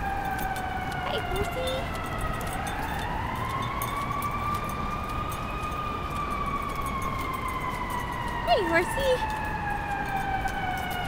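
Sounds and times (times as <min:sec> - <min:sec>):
emergency vehicle siren wailing: 0:00.0 - 0:11.0
low street rumble: 0:00.0 - 0:11.0.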